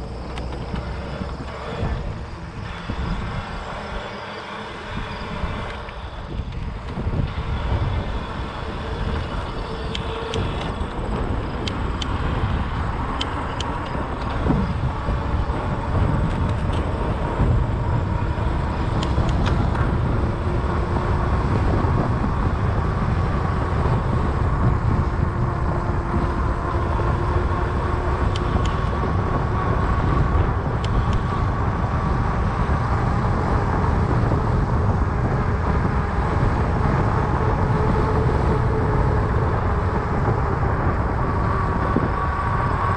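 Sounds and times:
faint tyre hum: 0.0 - 42.9
wind and tyre rumble: 0.0 - 42.9
light bike clicks: 13.1 - 14.6, 16.2 - 17.0, 19.0 - 19.9, 28.2 - 29.0, 30.8 - 31.4.

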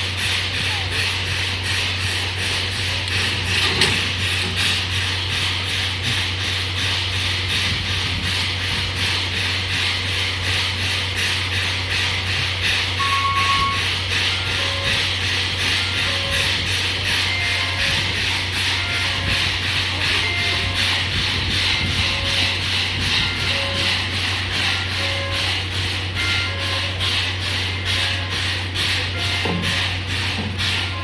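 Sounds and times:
short beep: 13.0 - 15.0.

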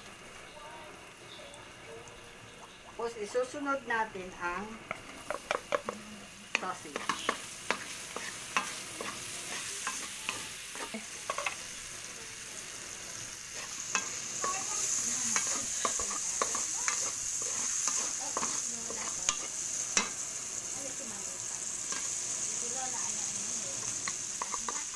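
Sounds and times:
sausage sizzling in wok: 0.0 - 24.9
wooden spatula scraping pan: 6.9 - 10.0.

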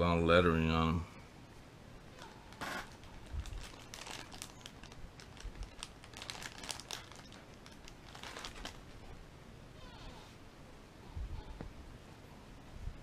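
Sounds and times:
plastic packaging crinkling: 2.2 - 9.1.

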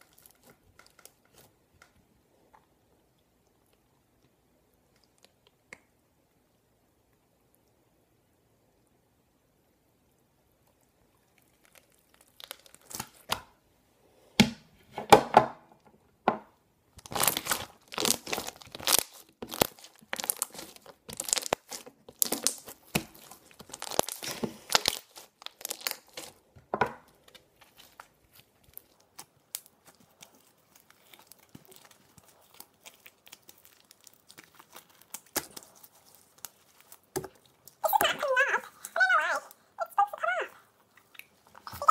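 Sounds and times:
slime crackling and popping: 0.0 - 2.0, 11.3 - 13.6, 16.9 - 39.6.

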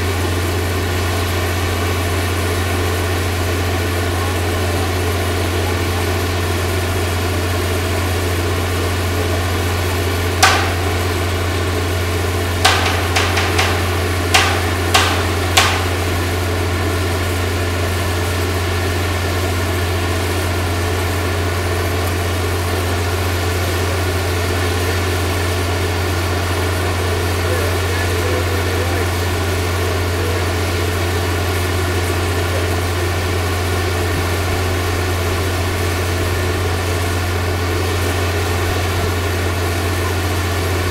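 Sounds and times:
crane engine idling: 0.0 - 40.9
sharp knocks: 10.4 - 16.6.

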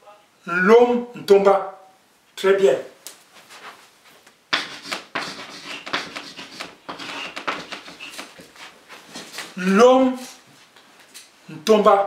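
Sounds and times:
chalk scratching on blackboard: 4.5 - 8.8.

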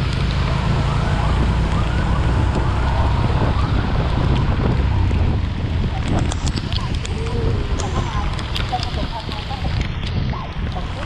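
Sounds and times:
rain and wind on microphone: 0.0 - 11.0.

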